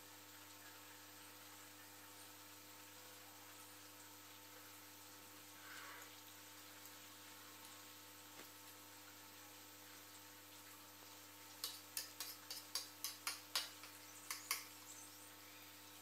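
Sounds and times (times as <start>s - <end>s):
cutlery clicking on plastic plate: 11.6s - 14.7s.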